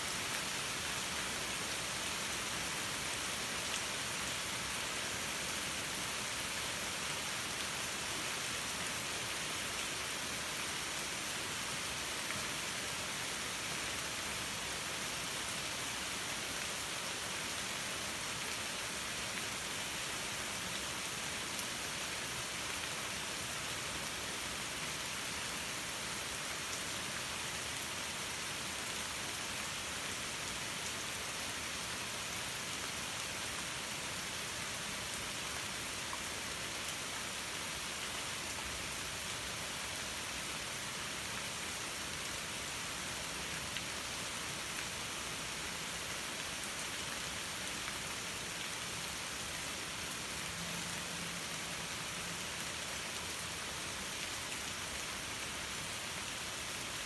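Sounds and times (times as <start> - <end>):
rain on leaves: 0.0 - 57.0.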